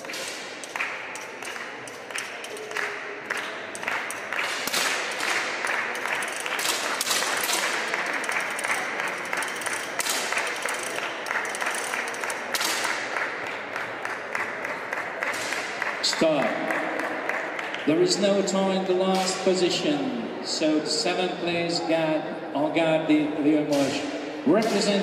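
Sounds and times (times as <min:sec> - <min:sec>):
audience applauding: 0:00.0 - 0:17.8.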